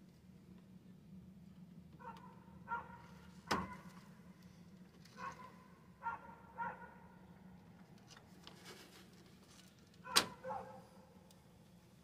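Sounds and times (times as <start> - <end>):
steady low hum: 0.0 - 12.0
dog barking: 2.0 - 3.8, 5.2 - 7.1, 10.0 - 10.9.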